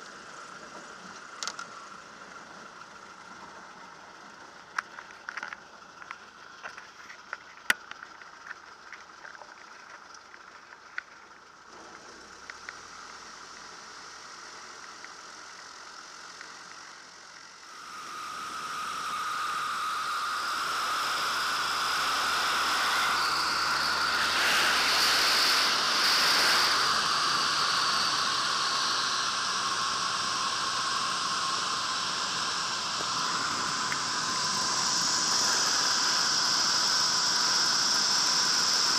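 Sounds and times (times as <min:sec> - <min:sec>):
airplane engine in flight: 0:00.0 - 0:38.9
high whine: 0:00.0 - 0:38.9
rushing wind: 0:17.8 - 0:38.9.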